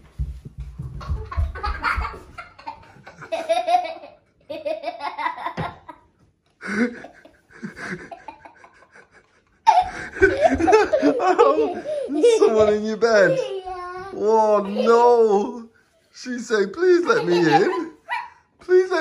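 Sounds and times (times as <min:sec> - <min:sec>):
young child laughing: 0:01.0 - 0:06.0, 0:06.6 - 0:15.1, 0:16.8 - 0:18.5.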